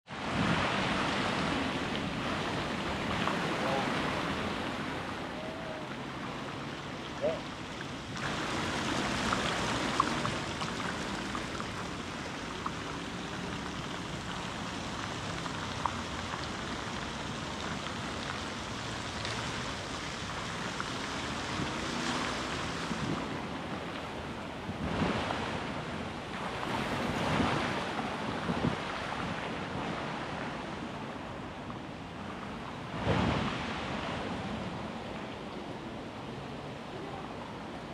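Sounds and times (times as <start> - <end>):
fountain water rushing: 0.1 - 37.9
road traffic: 0.6 - 27.0.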